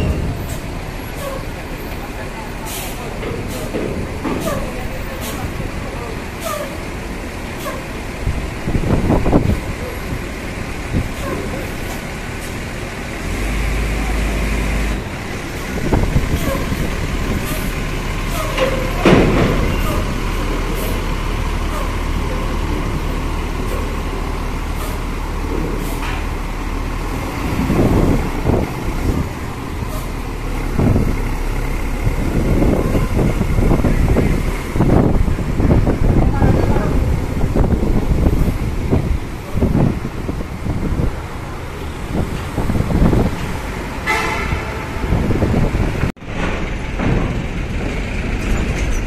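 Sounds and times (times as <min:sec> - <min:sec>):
diesel bus engines running: 0:00.0 - 0:49.0
air brakes hissing: 0:02.6 - 0:03.7.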